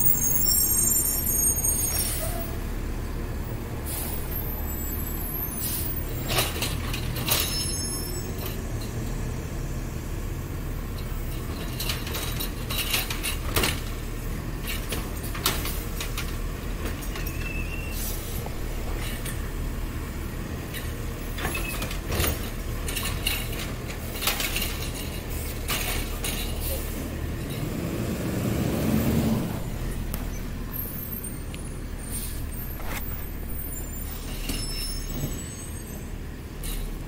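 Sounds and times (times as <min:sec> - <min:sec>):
garbage truck engine running: 0:10.0 - 0:35.2
clanks and knocks: 0:20.7 - 0:26.7.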